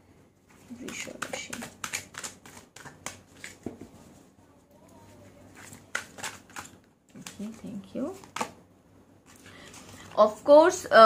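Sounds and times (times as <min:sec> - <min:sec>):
cards being shuffled: 0:00.6 - 0:04.0, 0:05.5 - 0:08.6.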